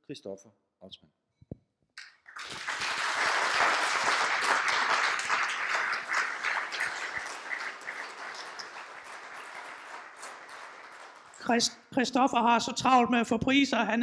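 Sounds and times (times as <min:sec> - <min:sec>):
audience applauding: 0:02.0 - 0:11.7.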